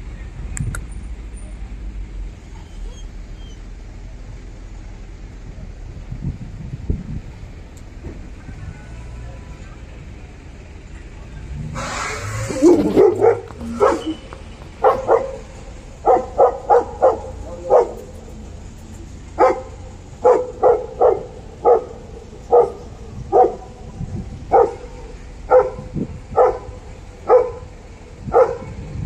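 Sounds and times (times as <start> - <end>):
dog barking: 12.5 - 18.1, 19.4 - 23.8, 24.5 - 27.7, 28.3 - 28.8.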